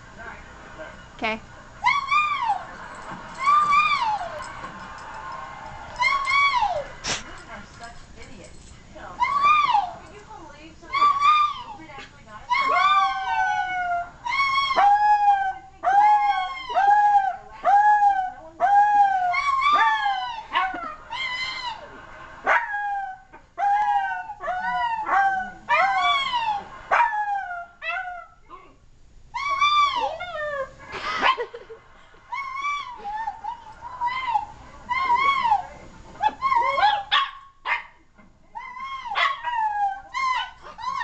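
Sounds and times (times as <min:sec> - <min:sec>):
dog howling: 0:01.8 - 0:02.7, 0:03.4 - 0:05.1, 0:05.8 - 0:07.0, 0:09.2 - 0:10.0, 0:12.5 - 0:21.9, 0:22.5 - 0:28.4, 0:29.4 - 0:30.8, 0:32.3 - 0:37.2, 0:38.6 - 0:41.0.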